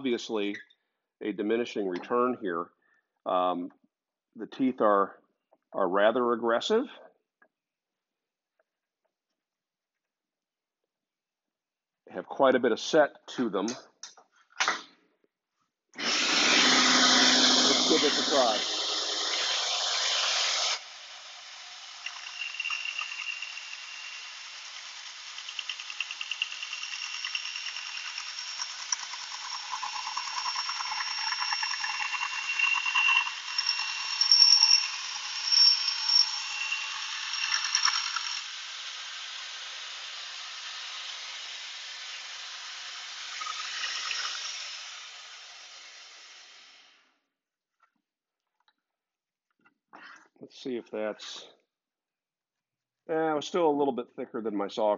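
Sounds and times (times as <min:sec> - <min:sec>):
bandsaw rasping through wood: 0:16.0 - 0:20.8
bandsaw running: 0:16.0 - 0:39.5.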